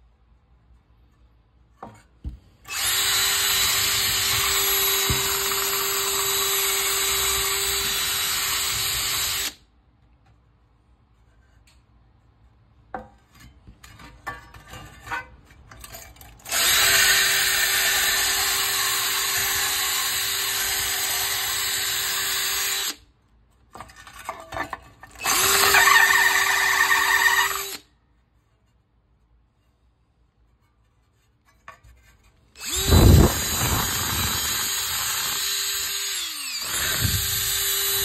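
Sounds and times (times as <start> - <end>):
drill wire brush scraping metal: 25.1 - 27.8, 30.6 - 38.0.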